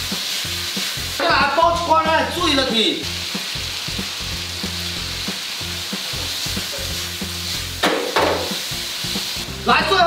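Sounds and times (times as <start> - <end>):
food sizzling in a wok: 0.0 - 10.0
wok being tossed: 7.7 - 8.7.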